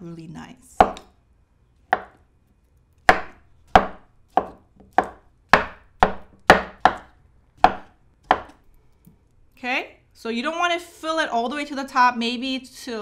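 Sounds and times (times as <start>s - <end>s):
knife chopping on wooden board: 0.8s - 1.1s, 1.9s - 2.2s, 3.0s - 8.6s.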